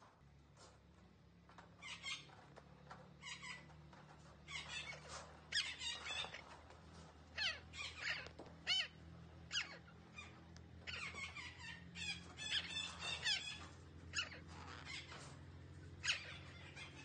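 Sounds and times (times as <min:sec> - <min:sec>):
parakeet harsh calls: 0:03.2 - 0:03.6, 0:04.5 - 0:06.6, 0:07.3 - 0:15.4, 0:16.0 - 0:17.0.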